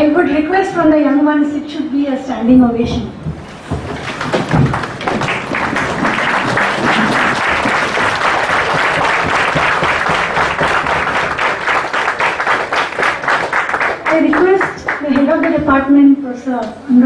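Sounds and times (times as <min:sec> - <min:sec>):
audience clapping: 0:03.4 - 0:15.7.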